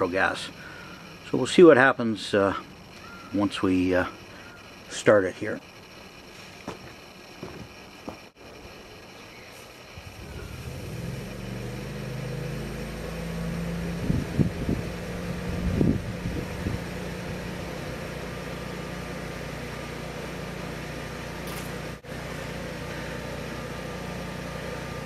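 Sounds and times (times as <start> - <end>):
generator engine running: 0.0 - 25.0.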